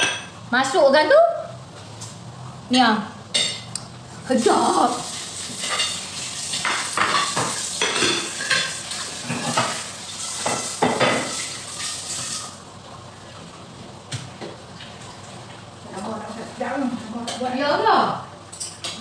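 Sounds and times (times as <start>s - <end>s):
food sizzling in a wok: 4.2s - 12.8s.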